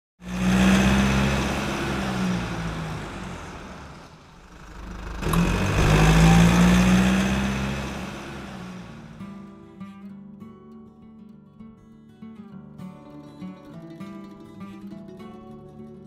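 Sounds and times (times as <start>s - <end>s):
car engine: 0.2s - 9.5s.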